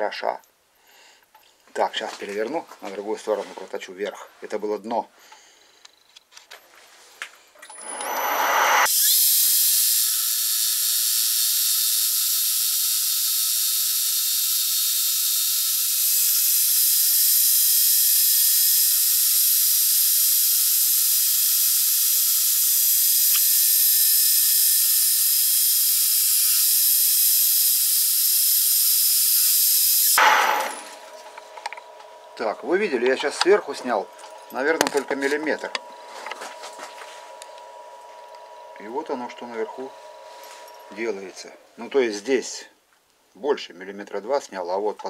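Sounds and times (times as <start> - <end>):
metal lathe cutting with hiss: 7.8 - 31.7.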